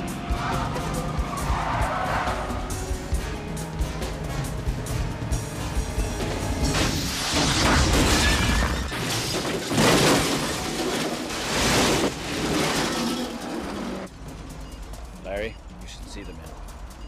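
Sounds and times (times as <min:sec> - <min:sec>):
loud crashing and smashing: 0:06.6 - 0:14.1.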